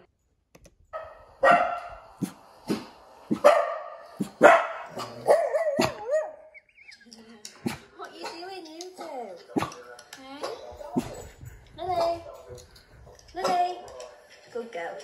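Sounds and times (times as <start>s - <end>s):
dogs barking: 1.0s - 6.6s.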